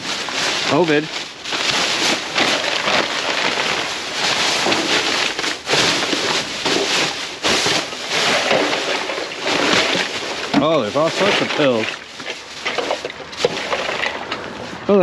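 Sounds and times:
plastic bags crinkling: 0.0s - 15.0s.

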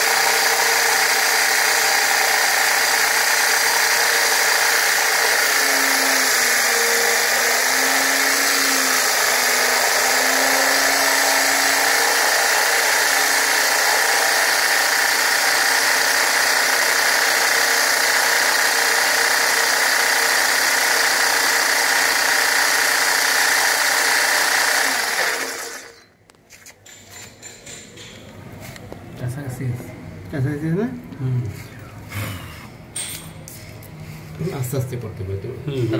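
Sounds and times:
drill core bit grinding stone: 0.0s - 26.1s.

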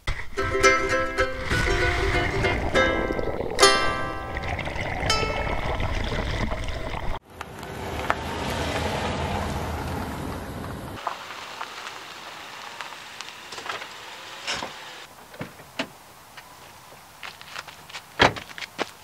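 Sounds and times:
loud low rushing noise: 1.2s - 5.0s.

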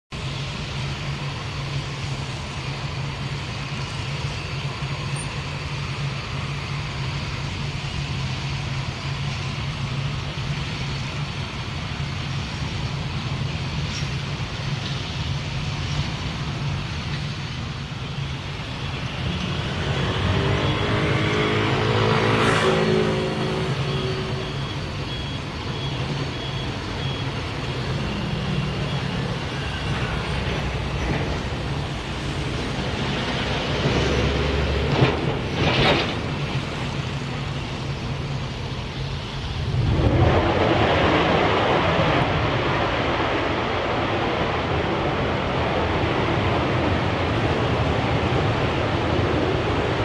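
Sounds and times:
vehicle engine noise: 0.1s - 50.0s
rushing roar: 18.5s - 50.0s.

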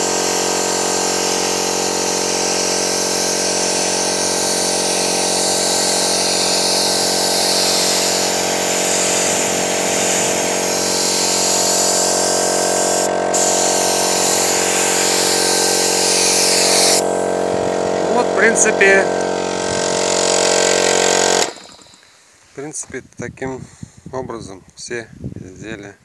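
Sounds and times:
paint spray hissing: 0.0s - 17.3s, 19.2s - 22.3s
spray gun hum: 0.0s - 22.4s.

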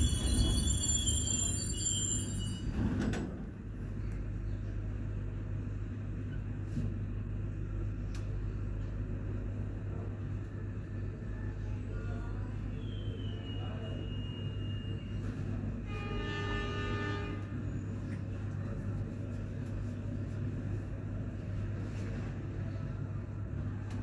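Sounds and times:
train hum and rumble: 0.0s - 24.0s.

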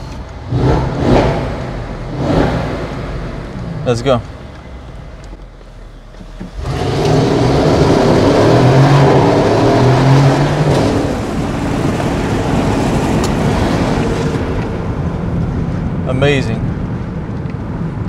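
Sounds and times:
engine accelerating hard: 0.0s - 4.2s, 6.4s - 16.0s.

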